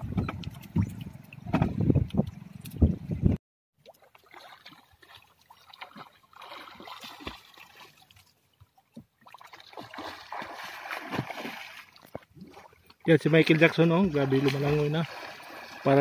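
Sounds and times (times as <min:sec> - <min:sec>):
swimming splashes: 0:03.8 - 0:08.5, 0:09.2 - 0:16.0
water lapping: 0:03.8 - 0:16.0.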